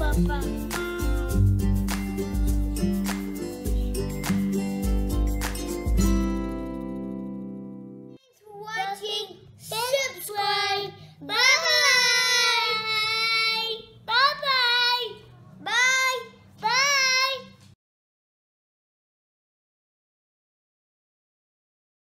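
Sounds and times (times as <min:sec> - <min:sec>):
child sing-song calling: 0:08.2 - 0:17.5.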